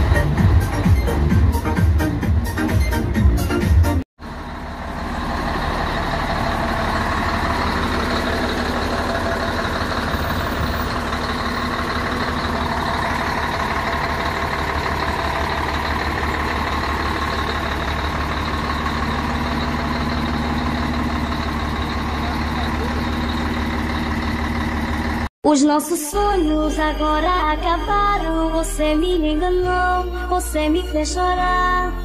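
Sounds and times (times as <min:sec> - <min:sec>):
truck diesel engine running: 0:00.0 - 0:25.3.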